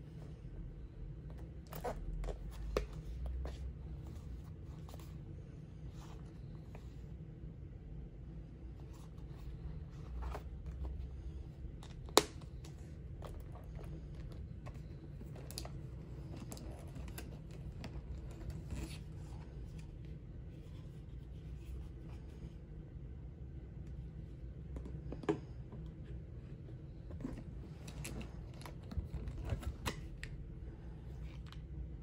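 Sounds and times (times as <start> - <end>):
low room hum: 0.0 - 32.0
wallet rustling and tapping: 1.6 - 5.0.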